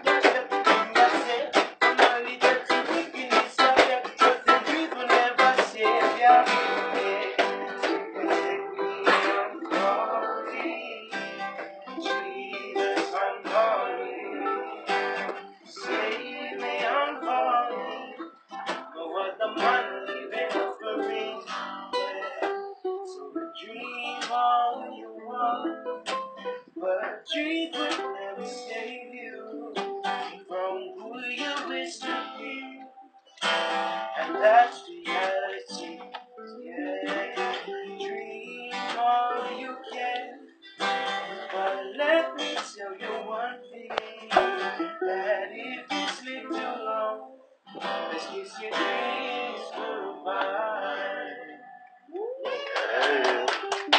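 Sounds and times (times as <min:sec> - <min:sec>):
ukulele and guitars strumming: 0:00.0 - 0:53.9.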